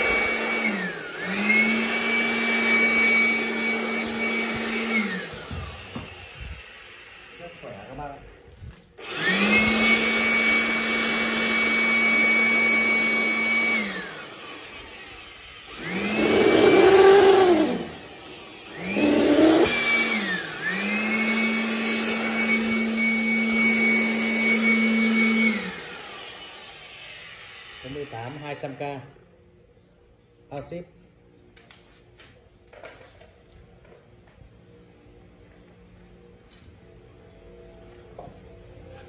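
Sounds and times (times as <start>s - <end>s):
electric dust blower whining: 0.0s - 28.9s.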